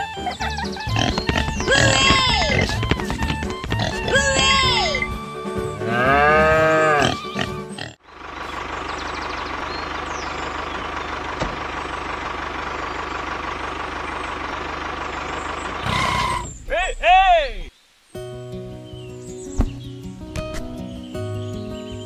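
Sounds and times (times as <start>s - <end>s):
farm animal calling: 0.0s - 5.2s, 5.8s - 11.1s
tractor engine running: 0.0s - 5.2s, 7.0s - 16.7s.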